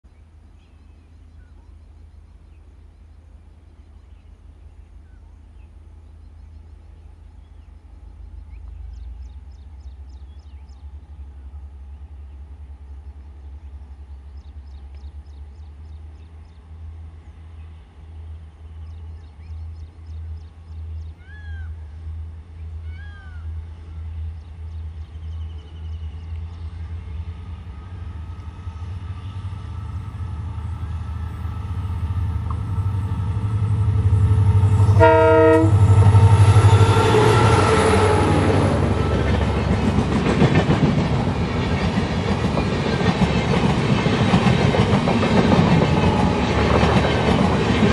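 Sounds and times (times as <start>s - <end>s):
diesel locomotive engine throbbing: 5.9s - 47.9s
train wheels on rails: 23.7s - 47.9s
train horn blast: 32.4s - 39.4s.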